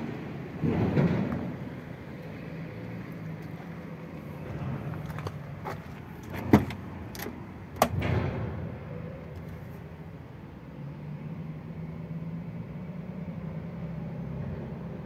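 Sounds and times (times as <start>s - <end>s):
sharp clicks and knocks: 4.6s - 8.7s.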